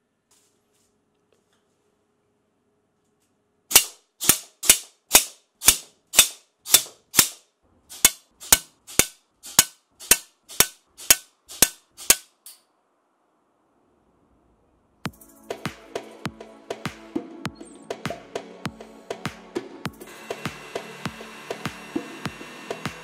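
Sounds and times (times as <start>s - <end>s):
airsoft gun shots: 3.7s - 12.3s.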